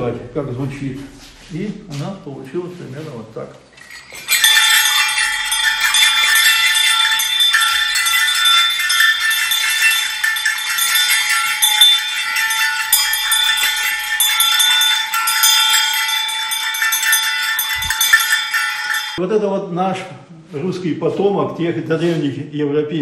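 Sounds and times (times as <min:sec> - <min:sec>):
sleigh bells jingling: 0:03.7 - 0:19.2
clear bell note ringing: 0:03.8 - 0:19.2.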